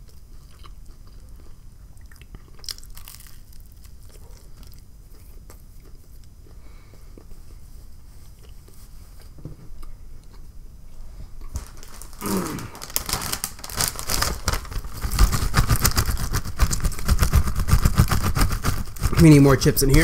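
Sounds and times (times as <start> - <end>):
crinkly chip bag rustling: 11.4 - 20.0.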